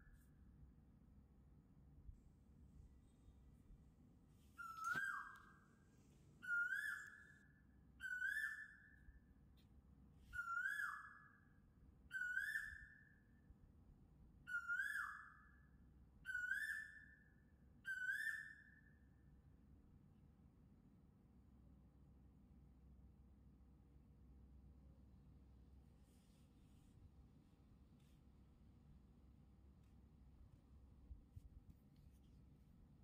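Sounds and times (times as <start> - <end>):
bird calling: 4.6 - 5.6, 6.4 - 7.3.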